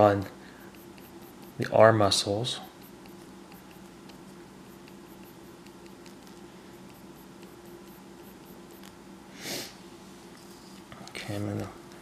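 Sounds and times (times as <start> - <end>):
steady low hum: 0.0 - 12.0
pencil scratching on paper: 0.6 - 1.7, 2.6 - 8.9.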